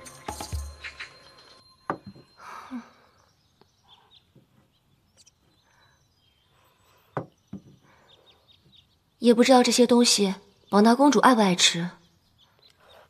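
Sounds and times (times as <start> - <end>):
faint bird chirps: 0.2 - 13.0.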